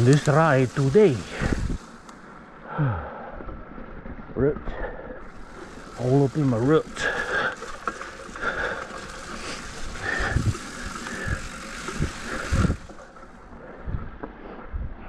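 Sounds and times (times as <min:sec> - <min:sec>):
bike rattling: 0:00.0 - 0:02.8, 0:03.4 - 0:14.6
bike tyre and trail noise: 0:00.0 - 0:15.0.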